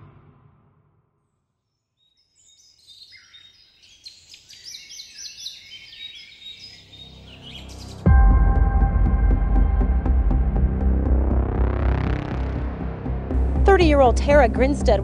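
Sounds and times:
small birds chirping: 2.0s - 8.1s
low throbbing drone: 7.9s - 15.0s.

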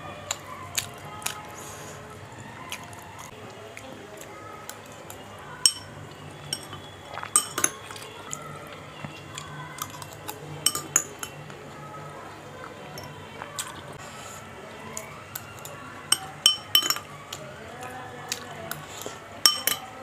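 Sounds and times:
metal spoon clinking ceramic bowl: 5.6s - 5.9s, 6.5s - 8.0s, 9.8s - 11.4s, 16.1s - 17.1s, 18.7s - 20.0s.

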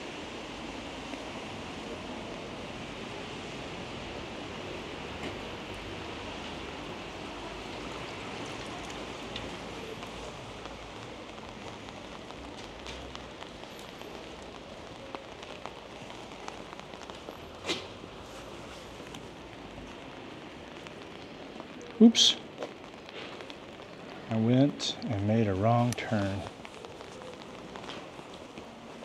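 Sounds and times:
steady rain falling: 0.0s - 29.0s
drops ticking on umbrella: 6.8s - 29.0s.

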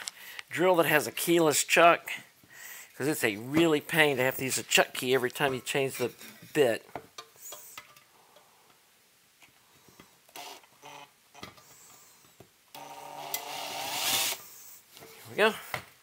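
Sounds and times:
electric drill running: 12.8s - 14.4s.

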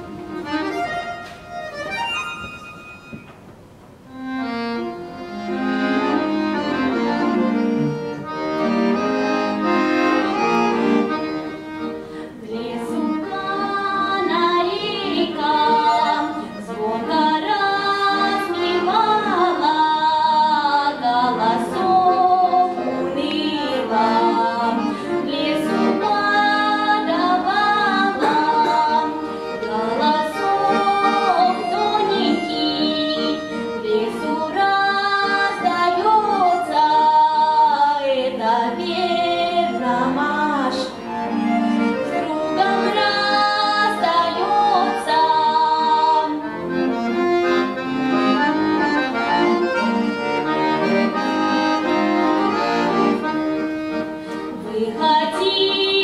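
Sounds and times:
button accordion playing: 0.0s - 56.0s
girl singing folk song: 12.3s - 41.1s, 42.0s - 46.5s, 54.5s - 56.0s.

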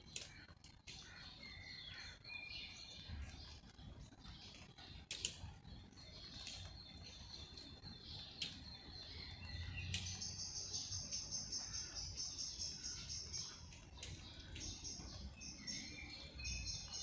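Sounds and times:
songbirds calling: 0.0s - 17.0s
sharp clicks: 4.9s - 5.6s, 8.3s - 8.7s, 9.8s - 10.4s, 13.4s - 14.8s.

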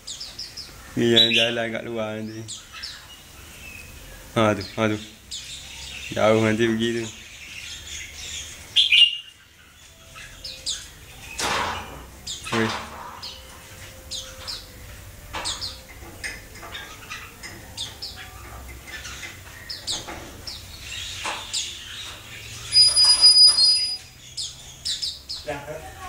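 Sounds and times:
birds chirping: 0.0s - 26.0s
loud high whistle: 22.8s - 24.1s.

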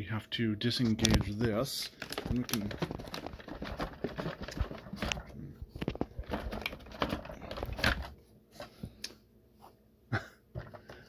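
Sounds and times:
plastic clicks and rattles: 1.0s - 8.1s.

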